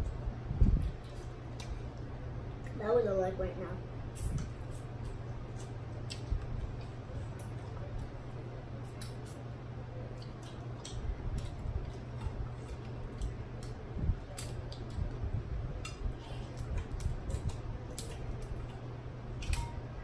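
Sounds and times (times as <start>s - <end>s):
low hum: 0.0s - 20.0s
wet eating sounds: 4.2s - 8.2s, 10.1s - 15.2s.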